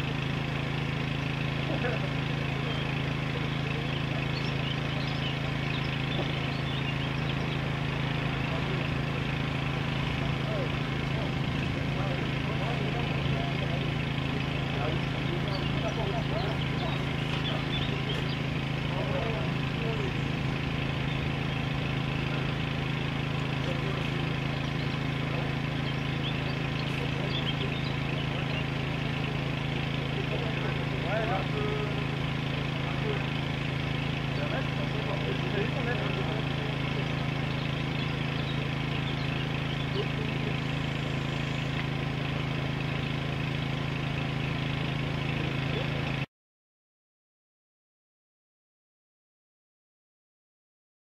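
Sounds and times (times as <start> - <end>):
steady engine hum: 0.0 - 46.3.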